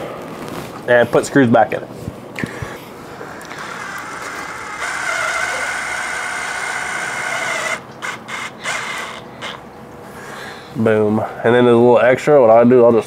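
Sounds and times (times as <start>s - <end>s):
cordless drill whining: 3.2s - 9.6s.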